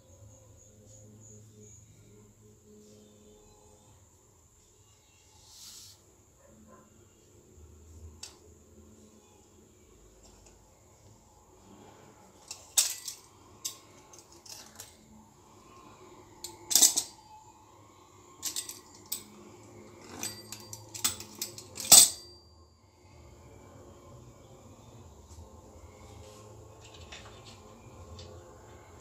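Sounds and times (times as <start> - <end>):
metal utensils clinking on stone countertop: 12.4 - 15.0, 16.4 - 17.2, 18.4 - 22.4.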